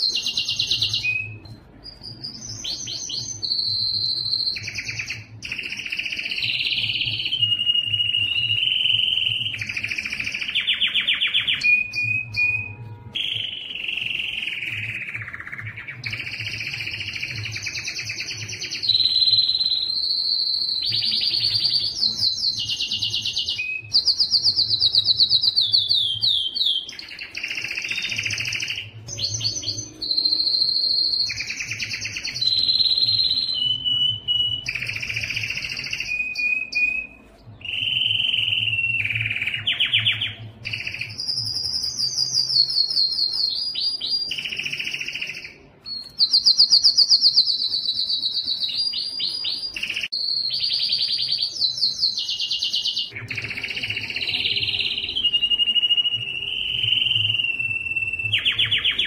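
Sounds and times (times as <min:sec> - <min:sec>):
canary singing trills: 0:00.0 - 0:59.0.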